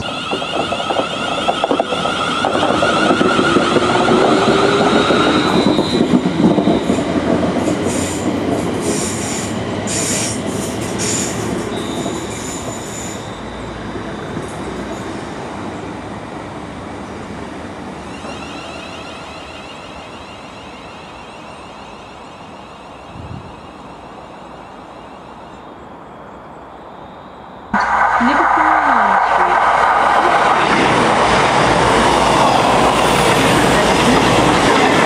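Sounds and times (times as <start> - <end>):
high wheel squeals: 11.0 - 14.4.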